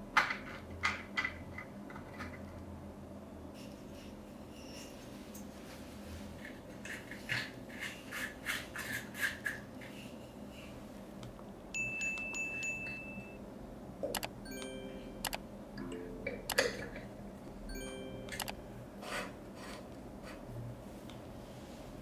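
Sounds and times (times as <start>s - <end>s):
bright ringing ding: 11.8s - 13.4s, 14.4s - 15.2s, 17.7s - 18.8s
sharp clicks with chiming notes: 14.2s - 16.7s, 17.7s - 18.7s.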